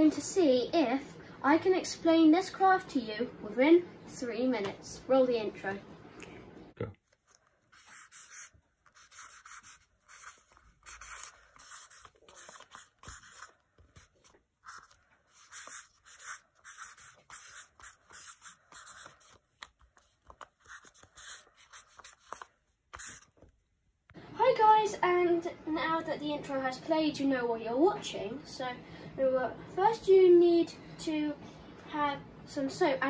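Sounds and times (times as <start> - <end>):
marker scratching on paper: 7.4 - 23.4.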